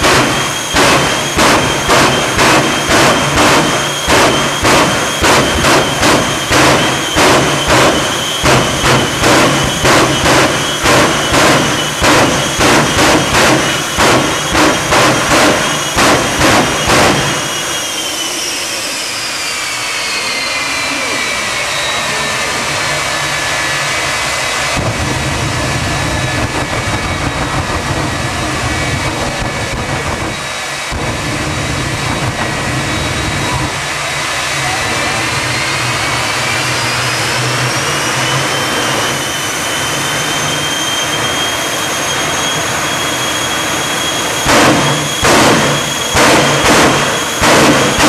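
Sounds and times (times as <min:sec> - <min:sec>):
jet engine popping: 0:00.0 - 0:17.5, 0:44.4 - 0:48.0
deep engine rumble: 0:00.0 - 0:48.0
jet turbine whine: 0:00.0 - 0:48.0.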